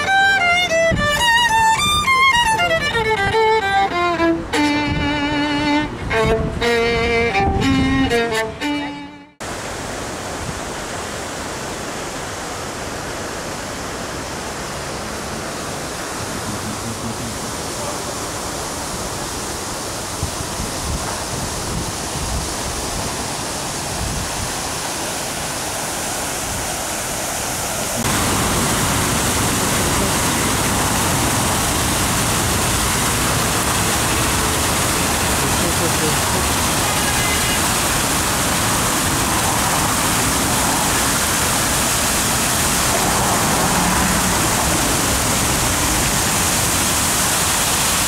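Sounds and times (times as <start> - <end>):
fountain water splashing: 0.0 - 7.5, 9.4 - 48.0.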